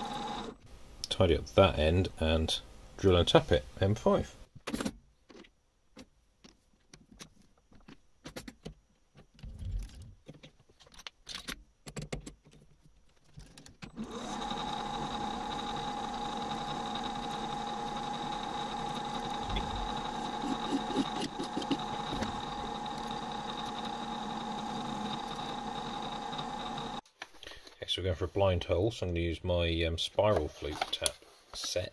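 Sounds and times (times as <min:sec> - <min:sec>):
metal lathe whine: 0:00.0 - 0:00.6, 0:14.0 - 0:27.0.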